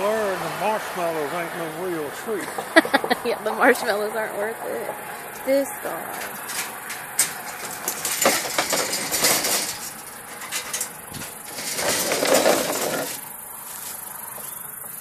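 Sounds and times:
scraping rustle: 0:04.7 - 0:15.0
wire-mesh trap rattling: 0:05.1 - 0:14.0.

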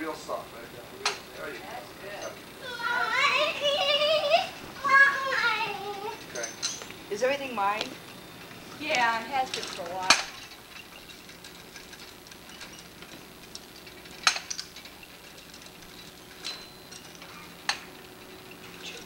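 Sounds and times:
faint steady hum: 0:00.0 - 0:19.0
metallic clicks and clanks: 0:06.2 - 0:07.0, 0:07.8 - 0:19.0.

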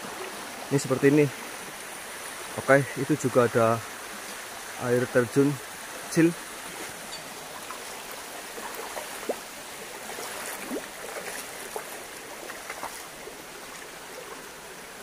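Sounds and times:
stream rushing over stones: 0:00.0 - 0:15.0
water plops: 0:07.2 - 0:13.1.

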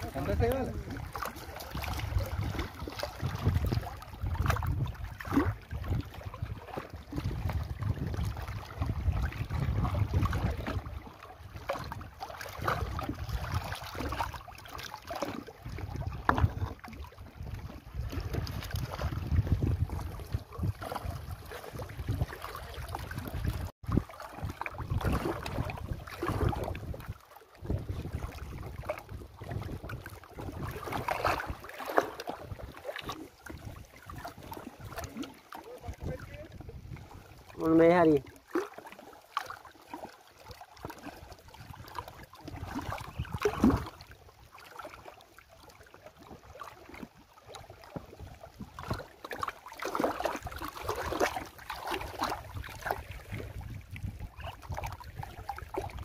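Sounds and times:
wind buffeting microphone: 0:00.0 - 0:14.3, 0:15.6 - 0:31.6, 0:35.8 - 0:38.2, 0:41.4 - 0:44.1, 0:50.9 - 0:56.0
short knocks and splashes: 0:00.0 - 0:45.2, 0:45.8 - 0:56.0
water lapping against rocks: 0:00.0 - 0:56.0.

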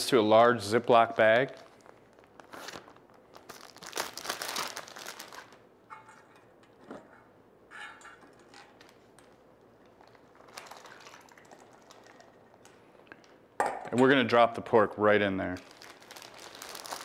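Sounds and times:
plastic bag crinkling: 0:00.3 - 0:05.6, 0:08.4 - 0:13.4, 0:15.4 - 0:17.0.

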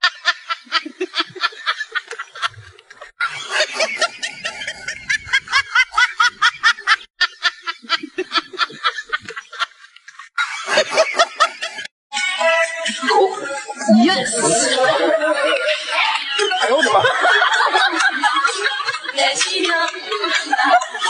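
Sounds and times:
person laughing: 0:00.2 - 0:09.7.

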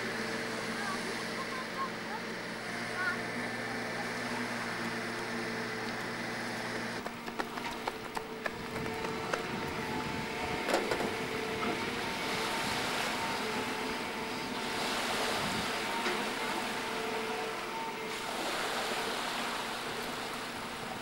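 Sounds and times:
water: 0:00.0 - 0:21.0
wind rushing over microphone: 0:07.9 - 0:12.8.

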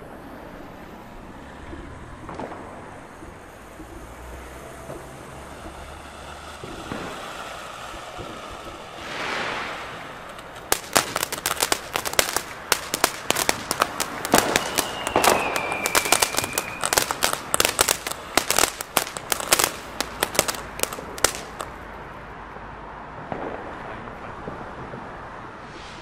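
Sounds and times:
firecracker bangs and crackles: 0:00.0 - 0:21.9, 0:23.1 - 0:26.0
firework fountain hissing: 0:00.0 - 0:22.0, 0:25.4 - 0:26.0
high falling whistle: 0:14.3 - 0:17.6.

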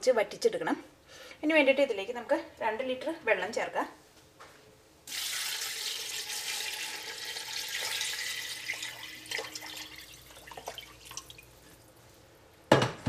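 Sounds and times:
water splashing: 0:05.1 - 0:11.8
water pouring into a pot: 0:05.1 - 0:12.0.

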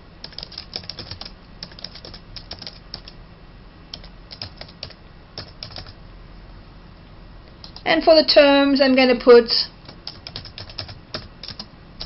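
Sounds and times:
computer keyboard typing: 0:00.2 - 0:03.2, 0:03.9 - 0:06.0, 0:07.6 - 0:07.8, 0:09.8 - 0:11.7.

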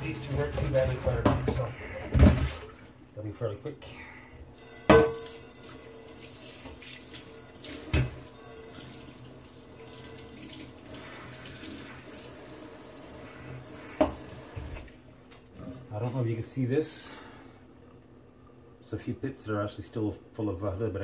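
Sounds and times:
knock of pan: 0:04.9 - 0:05.3
metallic clank of pan: 0:04.9 - 0:05.3
tap running onto a pan: 0:04.9 - 0:05.4, 0:07.9 - 0:08.2.

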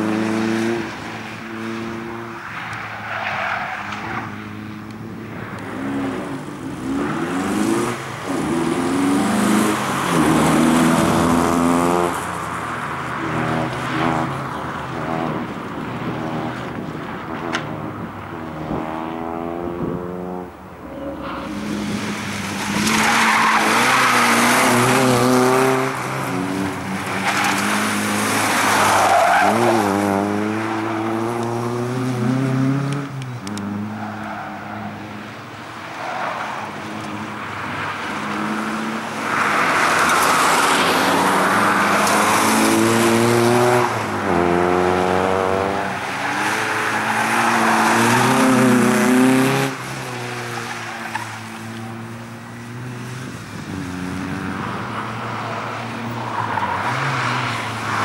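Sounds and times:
car engine revving: 0:36.7 - 0:51.3.

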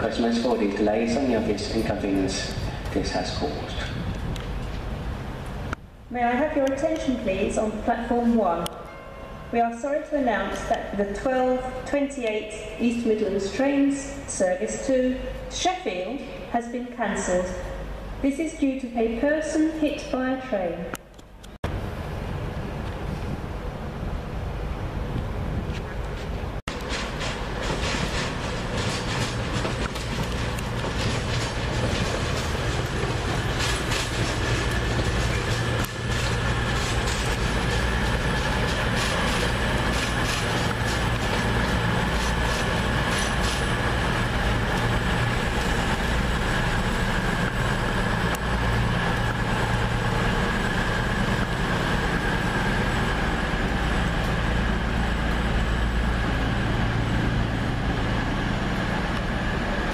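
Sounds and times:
train engines droning: 0:00.0 - 0:59.9
wheels clicking over rail joints: 0:25.1 - 0:59.9.

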